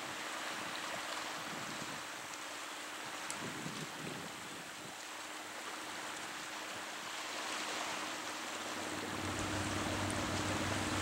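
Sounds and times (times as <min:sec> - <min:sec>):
sea washing against rocks: 0:00.0 - 0:11.0
boat engine drone: 0:07.1 - 0:11.0.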